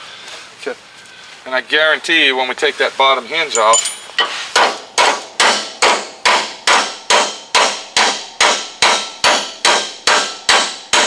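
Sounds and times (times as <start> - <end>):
hammer striking steel hinge: 3.6 - 11.0.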